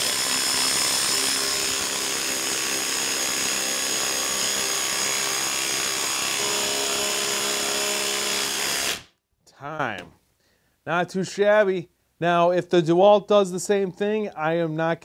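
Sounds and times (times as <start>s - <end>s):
impact driver hammering screw: 0.0s - 9.1s.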